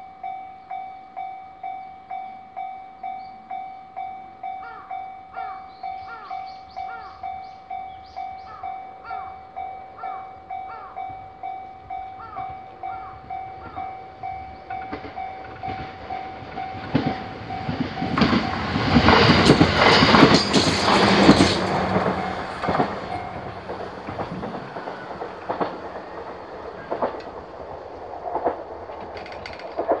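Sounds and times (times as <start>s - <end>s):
level-crossing bell dinging: 0.0s - 26.3s
electric train passing: 0.0s - 30.0s
train wheels clacking on rail joints: 11.9s - 30.0s.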